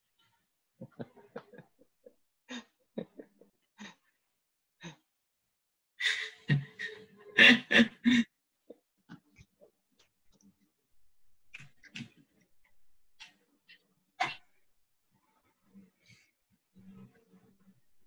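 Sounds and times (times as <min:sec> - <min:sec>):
man laughing breathily: 0:00.8 - 0:03.5.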